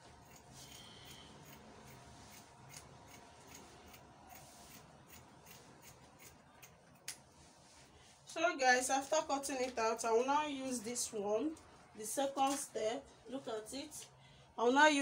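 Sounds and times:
scissors snipping fabric: 0.2s - 7.2s.

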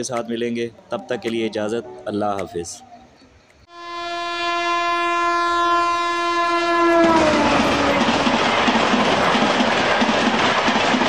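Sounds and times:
train horn: 3.7s - 8.1s
train running past: 3.8s - 11.0s.

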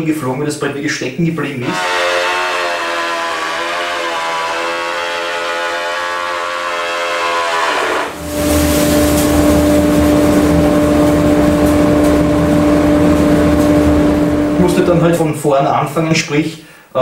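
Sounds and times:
board feeding through planer: 1.6s - 10.9s
planer motor whine: 1.6s - 15.0s.

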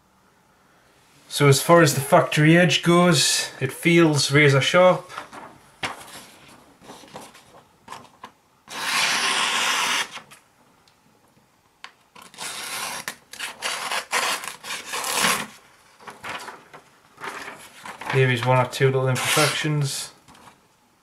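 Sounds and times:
knife slicing paper: 8.7s - 10.2s, 12.2s - 15.6s, 19.1s - 19.8s.

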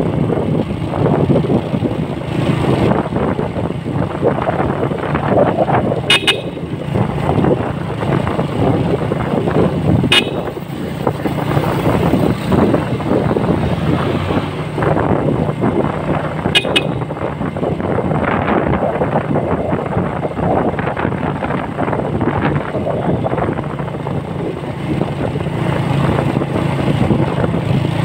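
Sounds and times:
vehicle engine and road rumble: 0.0s - 28.0s
short horn toots: 6.1s - 6.6s, 10.1s - 10.6s, 16.5s - 17.1s.

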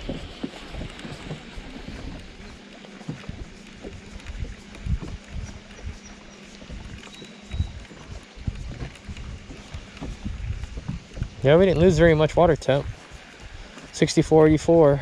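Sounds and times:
waves slapping against boat hull: 0.0s - 15.0s.

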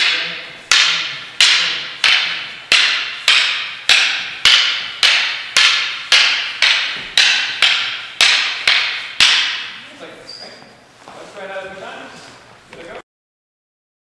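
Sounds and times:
wooden sticks clacking: 0.0s - 9.9s.

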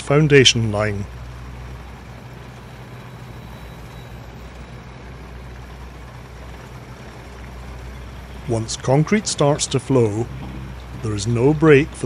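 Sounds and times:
engine humming: 0.0s - 12.0s.

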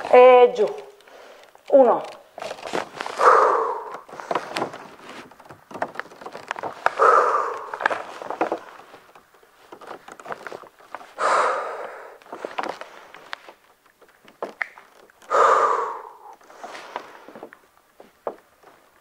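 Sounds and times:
woman exhaling forcefully: 3.2s - 4.0s, 7.0s - 7.8s, 11.2s - 12.2s, 15.3s - 16.3s
small knocks and clicks: 3.8s - 11.2s, 12.2s - 15.3s, 16.3s - 19.0s.

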